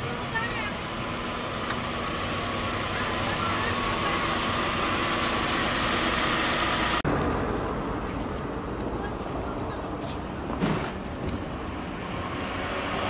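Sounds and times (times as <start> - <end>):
vehicle engine idling: 0.0 - 7.6.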